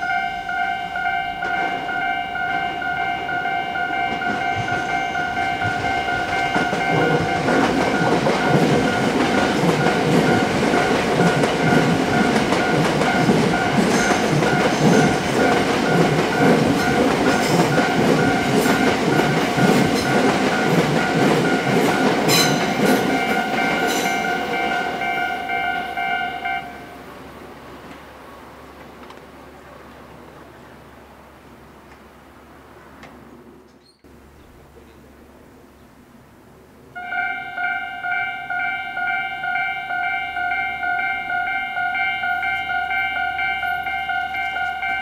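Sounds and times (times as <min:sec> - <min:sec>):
train wheels clacking: 0:00.0 - 0:26.6
level crossing bell ringing: 0:00.0 - 0:27.0, 0:37.0 - 0:45.0.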